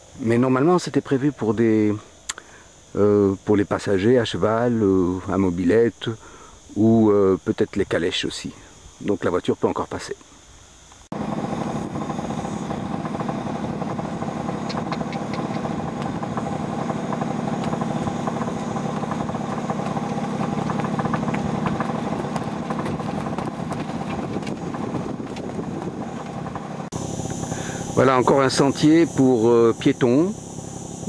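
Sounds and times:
motorcycle engine idling: 0:11.1 - 0:31.0.

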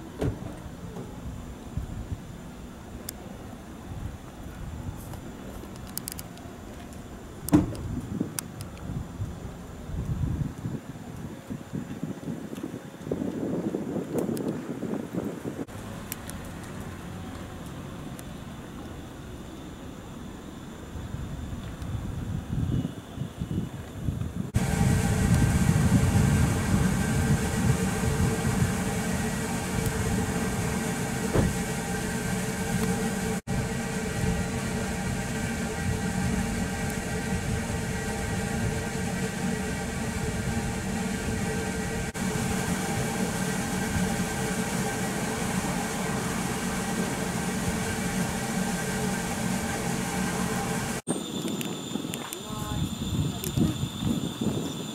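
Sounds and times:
electric train equipment humming: 0:24.4 - 0:54.9
low rumble: 0:24.5 - 0:54.3.

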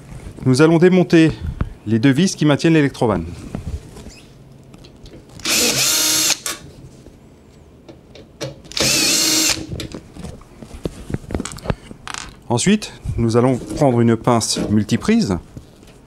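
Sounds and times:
cordless drill running: 0:05.4 - 0:06.4, 0:08.7 - 0:09.7.

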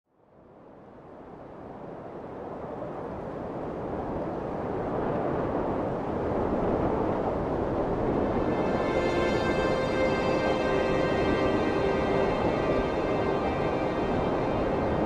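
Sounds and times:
low rushing wind-like rumble: 0:00.9 - 0:15.0.

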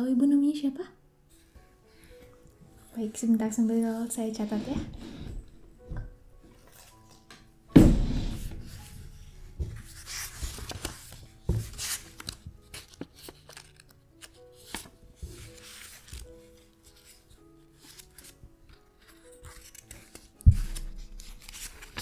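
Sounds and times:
background music: 0:00.0 - 0:22.0
loud thump on desk: 0:07.7 - 0:08.7
pen rustling on paper: 0:08.6 - 0:18.4, 0:19.0 - 0:22.0.

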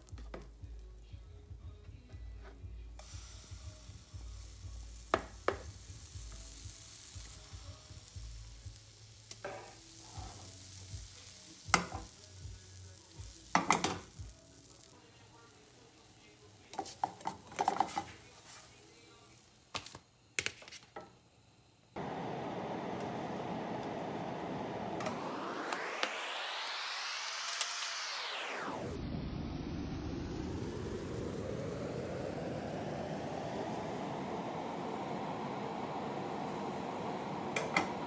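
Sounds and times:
batter sizzling in a frying pan: 0:03.0 - 0:20.8
utensils clinking against pan: 0:16.8 - 0:18.2.

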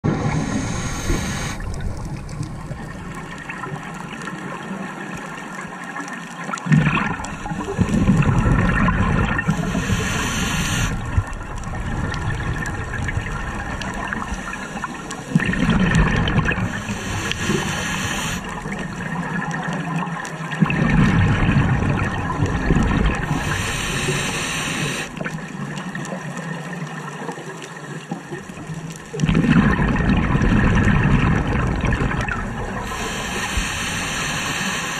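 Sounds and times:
bubbles rushing on exhale: 0:00.0 - 0:26.7, 0:28.3 - 0:34.9
regulator inhale hiss: 0:00.1 - 0:01.8, 0:09.4 - 0:11.2, 0:14.1 - 0:15.3, 0:16.6 - 0:18.8, 0:23.2 - 0:25.2, 0:32.8 - 0:34.9.

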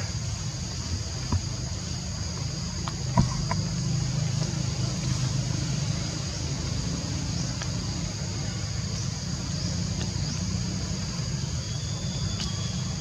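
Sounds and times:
high-pitched insect drone: 0:00.0 - 0:13.0.

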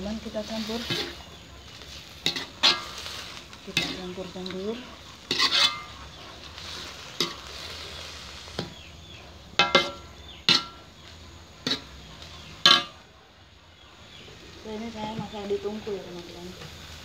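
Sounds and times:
low hiss of cooking: 0:00.0 - 0:17.0
metal ladle clanking in wok: 0:09.6 - 0:10.9, 0:12.6 - 0:13.0.

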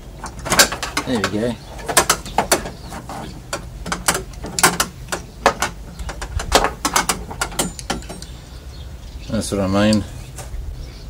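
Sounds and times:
metallic clicks and rattles of lock: 0:00.2 - 0:08.4.

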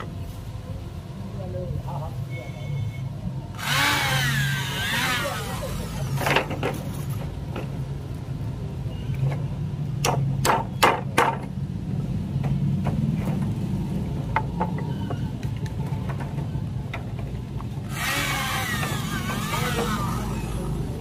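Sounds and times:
electric drill whirring: 0:03.6 - 0:06.2, 0:17.9 - 0:21.0
hammer striking nails into wood: 0:10.0 - 0:11.5.

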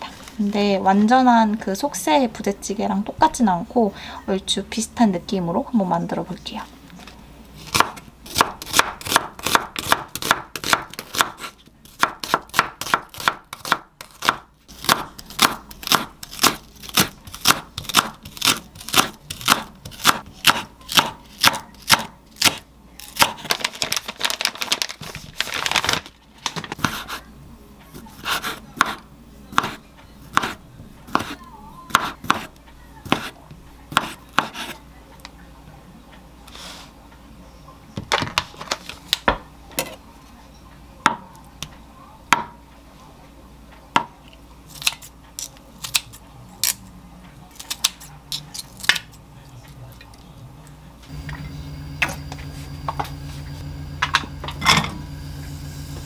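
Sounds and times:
knife chopping on wooden board: 0:07.7 - 0:22.6, 0:26.8 - 0:27.2, 0:28.0 - 0:34.8, 0:42.4 - 0:42.6.

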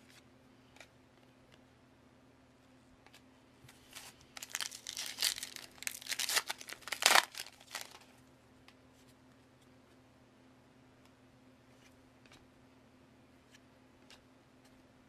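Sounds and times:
foil wrapper crinkling and tearing: 0:04.0 - 0:08.0.

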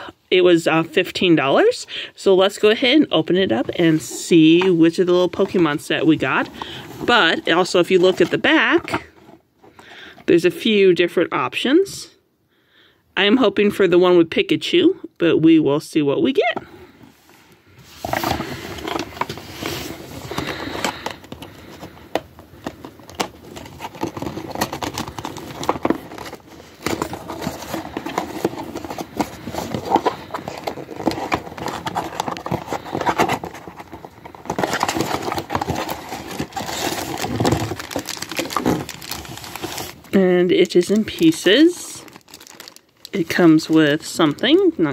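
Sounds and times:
cardboard packaging rustling: 0:02.4 - 0:09.8, 0:16.4 - 0:44.9.

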